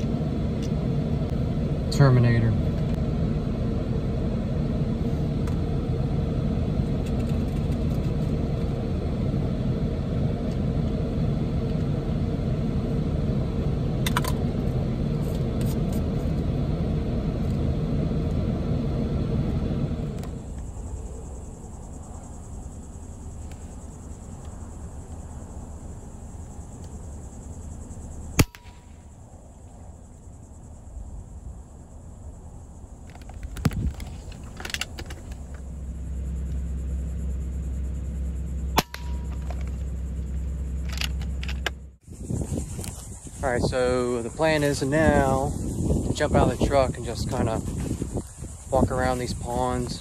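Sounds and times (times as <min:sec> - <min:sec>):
truck engine rumbling: 0:00.0 - 0:50.0
sharp crack: 0:28.4 - 0:29.1, 0:38.8 - 0:39.8.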